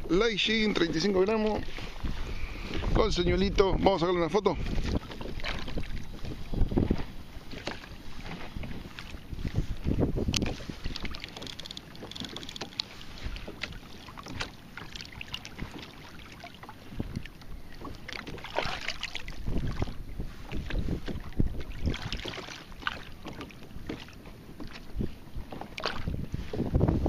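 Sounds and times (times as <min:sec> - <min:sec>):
wind gusts on microphone: 0:00.0 - 0:14.5, 0:16.8 - 0:22.9, 0:24.6 - 0:27.0
water lapping at a kayak: 0:00.0 - 0:27.0
small knocks and clicks: 0:10.3 - 0:12.9.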